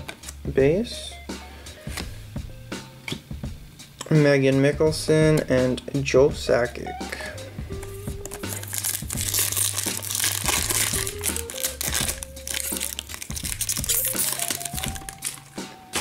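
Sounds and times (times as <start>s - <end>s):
background music with bass line: 0.0s - 16.0s
foil wrapper crinkling: 8.2s - 16.0s.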